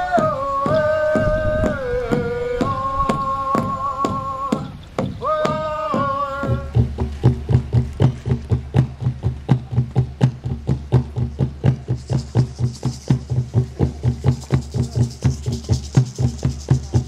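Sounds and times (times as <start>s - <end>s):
long held sung notes: 0.0s - 7.1s
large drum steady beat: 0.0s - 17.0s.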